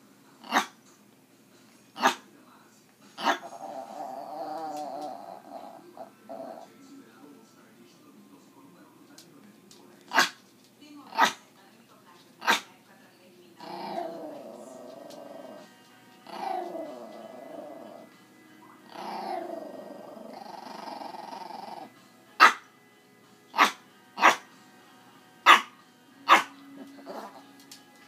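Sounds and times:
dog barking: 0:00.5 - 0:00.8, 0:02.0 - 0:02.3, 0:03.2 - 0:03.8, 0:10.1 - 0:10.4, 0:11.1 - 0:11.4, 0:12.4 - 0:12.7, 0:22.4 - 0:22.7, 0:23.6 - 0:24.4, 0:25.4 - 0:26.6
dog growling vocalizations: 0:03.2 - 0:06.8, 0:13.6 - 0:18.2, 0:18.8 - 0:21.9, 0:26.3 - 0:27.6.

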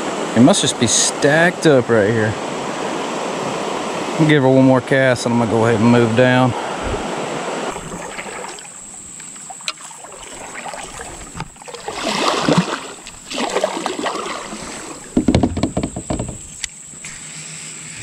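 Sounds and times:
water swishing with paddle strokes: 0:06.6 - 0:18.0
light knocks: 0:15.1 - 0:16.7.

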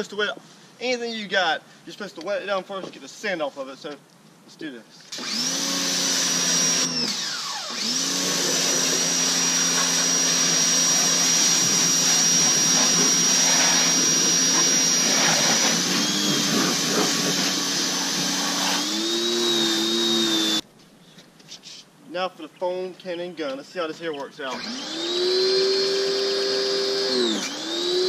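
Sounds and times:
pressure washer motor whine: 0:05.2 - 0:20.6, 0:24.6 - 0:28.0
water spray hissing: 0:08.3 - 0:19.0.

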